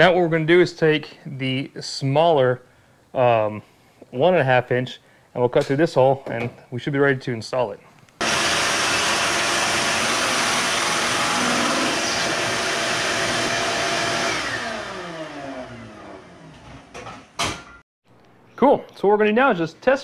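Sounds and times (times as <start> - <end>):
shop vacuum running: 8.2 - 17.0.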